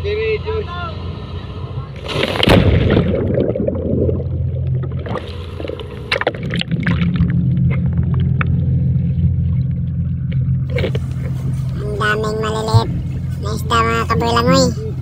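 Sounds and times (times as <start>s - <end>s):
boat engine humming: 0.0s - 15.0s
sharp knocks or splashes: 2.0s - 3.8s
water sloshing against hull: 2.0s - 13.9s.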